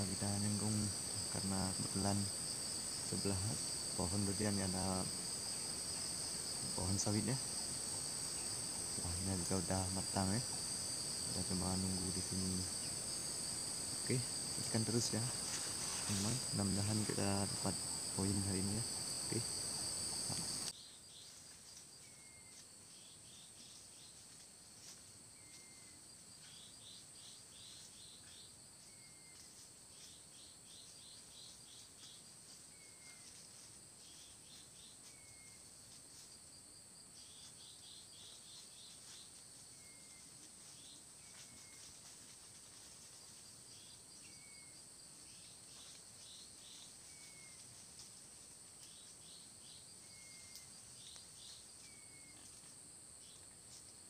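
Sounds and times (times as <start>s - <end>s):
high-pitched insect drone: 0.0s - 20.7s.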